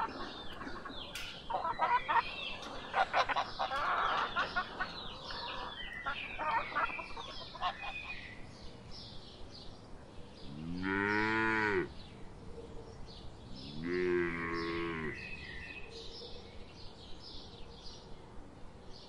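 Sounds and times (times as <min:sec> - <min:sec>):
rooster clucking: 0:00.0 - 0:08.1
cow mooing: 0:10.5 - 0:11.9, 0:13.6 - 0:15.2.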